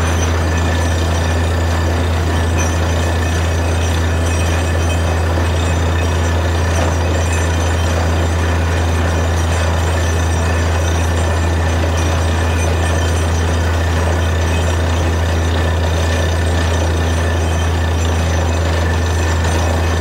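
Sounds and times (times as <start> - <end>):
drilling rig engine drone: 0.0 - 20.0.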